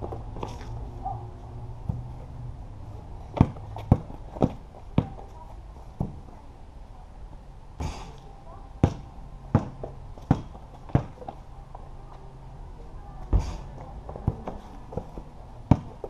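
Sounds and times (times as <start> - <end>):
basketball bouncing on concrete: 3.3 - 5.2, 8.8 - 11.4, 14.1 - 16.0.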